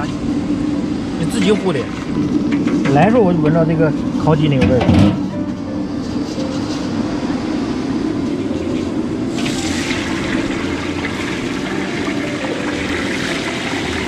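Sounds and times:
wok stove blower roar: 0:00.0 - 0:14.0
chicken sizzling in hot oil: 0:09.3 - 0:14.0.

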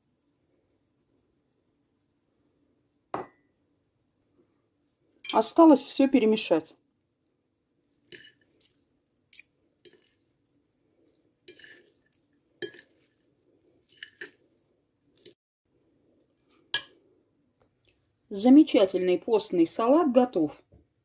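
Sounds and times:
forks clinking and scraping plate: 0:11.5 - 0:13.2, 0:13.8 - 0:14.4.

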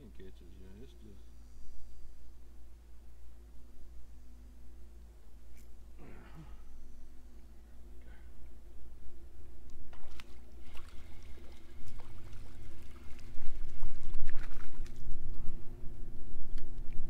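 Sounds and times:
steady low hum: 0:00.0 - 0:17.0
water splashing and trickling: 0:09.9 - 0:15.4.

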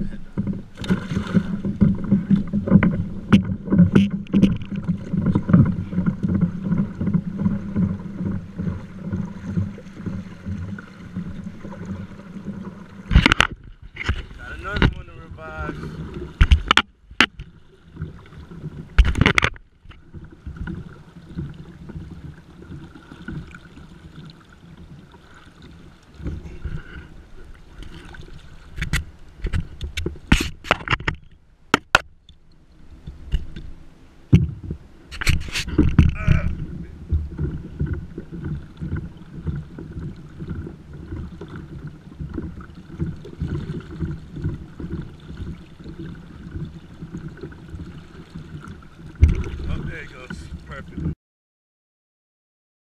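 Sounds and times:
low microphone rumble: 0:00.0 - 0:19.2, 0:32.8 - 0:51.2
sharp knocks and splashes: 0:00.0 - 0:51.2
water lapping against kayak hull: 0:00.0 - 0:51.2.

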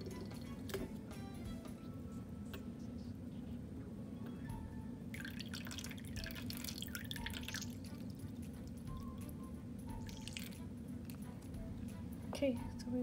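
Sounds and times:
syringe squirting liquid: 0:05.2 - 0:08.8, 0:10.0 - 0:11.2.

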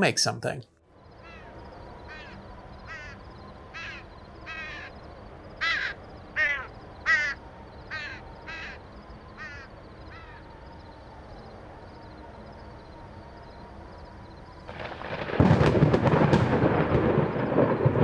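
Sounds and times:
background hiss: 0:00.0 - 0:00.6
crow cawing: 0:01.2 - 0:05.0, 0:05.6 - 0:08.8, 0:09.4 - 0:10.5.

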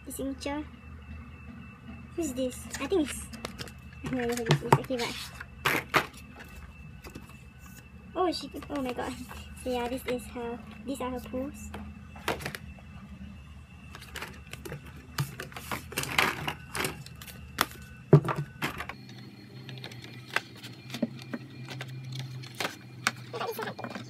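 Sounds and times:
photobooks being handled: 0:03.4 - 0:07.8, 0:13.9 - 0:24.0
paper rustles: 0:13.9 - 0:17.9.

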